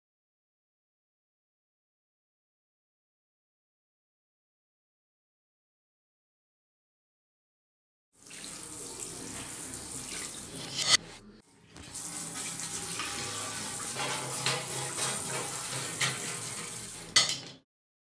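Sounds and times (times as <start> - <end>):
water spraying from sink sprayer: 8.2 - 11.0, 11.8 - 17.6
brush scrubbing metal blade: 10.1 - 11.1, 12.3 - 17.4.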